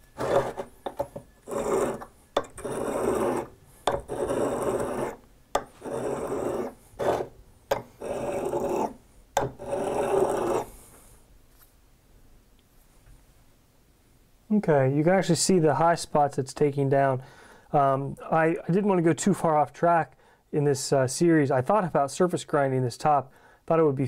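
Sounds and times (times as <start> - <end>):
steel rubbing on sharpening stone: 0.1 - 0.7, 1.4 - 7.3, 8.0 - 9.0, 9.6 - 10.7.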